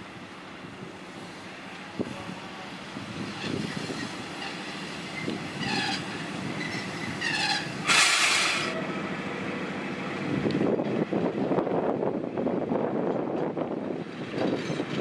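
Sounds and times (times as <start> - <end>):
diesel locomotive engine running: 0.0 - 15.0
loud burst of hiss: 7.6 - 8.8.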